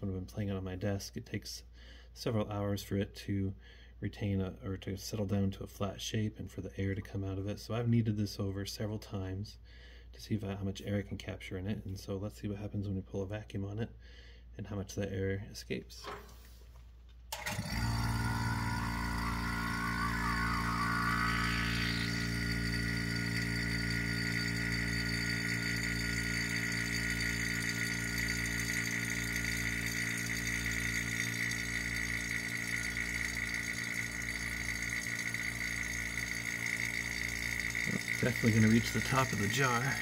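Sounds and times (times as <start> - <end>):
vacuum pump running: 17.3 - 40.0
high-pitched whistle whine: 17.8 - 40.0.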